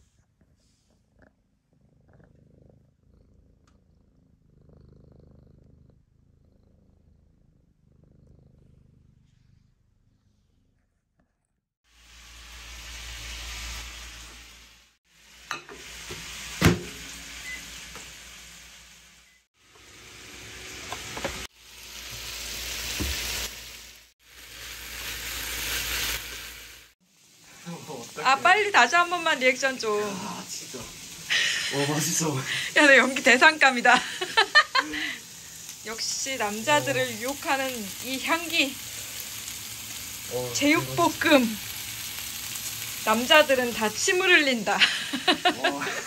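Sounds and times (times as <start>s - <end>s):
low purring: 0.0s - 11.6s
food sizzling in a pan: 11.8s - 46.0s.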